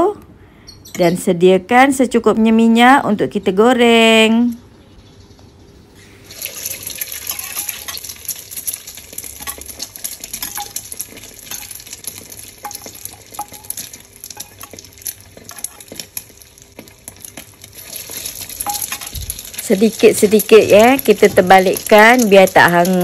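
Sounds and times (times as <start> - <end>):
food deep-frying in hot oil: 6.2 - 23.0.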